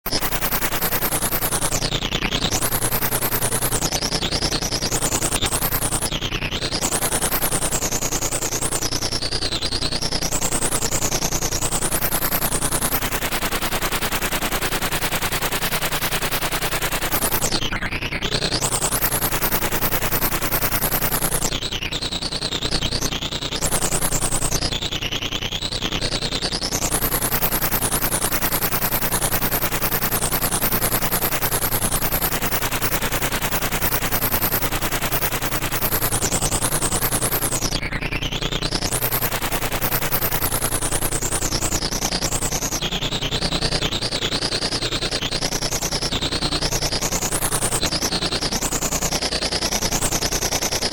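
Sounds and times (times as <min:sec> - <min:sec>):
rapid electronic stutter: 0:00.1 - 0:50.9.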